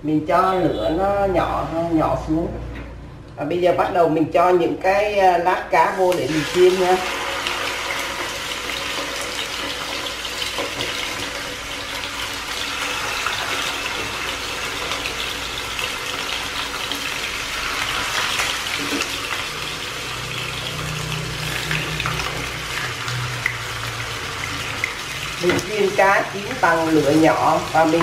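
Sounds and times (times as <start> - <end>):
fish sizzling in oil: 5.9 - 28.0.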